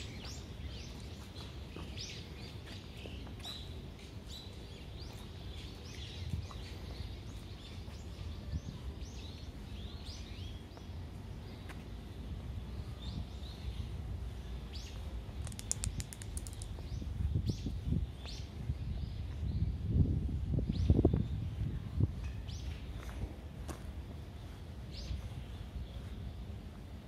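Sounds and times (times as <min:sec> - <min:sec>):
small birds chirping: 0:00.0 - 0:19.8
rapid sharp clicks: 0:15.4 - 0:16.8.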